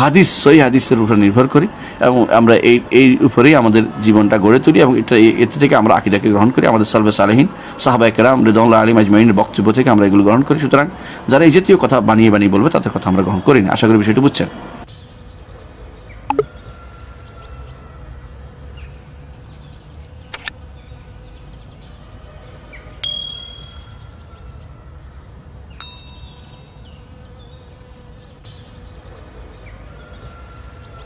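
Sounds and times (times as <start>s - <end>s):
faint chirping insects: 17.6s - 31.0s
notification bell ding: 23.0s - 24.0s.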